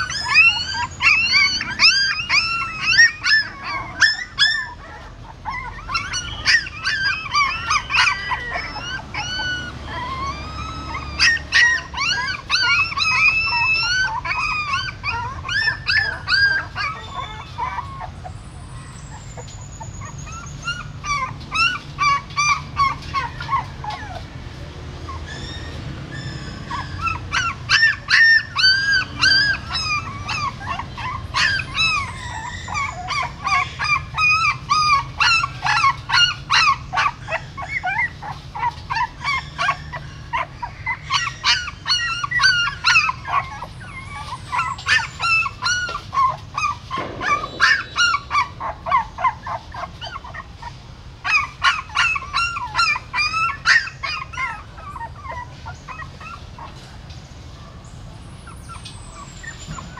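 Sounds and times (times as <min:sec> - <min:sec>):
puppies whimpering and squealing: 0:00.0 - 0:59.9.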